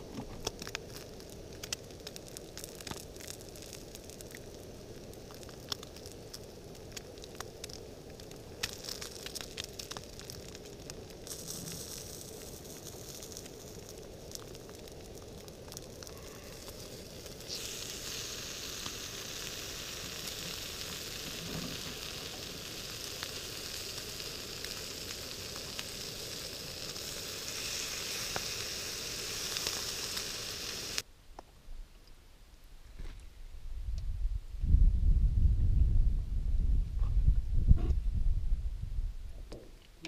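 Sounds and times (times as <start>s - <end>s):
food sizzling in frying pan: 0.5s - 31.0s.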